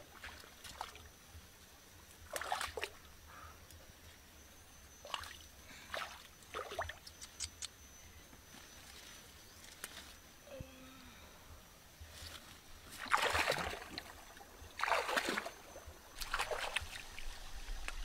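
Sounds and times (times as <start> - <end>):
stems rustling and snapping: 9.6 - 10.2.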